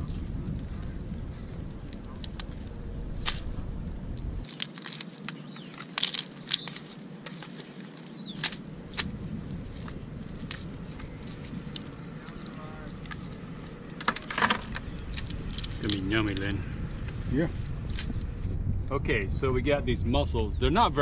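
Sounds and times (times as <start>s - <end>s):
wind rumble on microphone: 0.0s - 21.0s
crab shells cracking: 1.8s - 3.5s, 4.4s - 16.5s
plastic bag crackling: 4.4s - 16.4s.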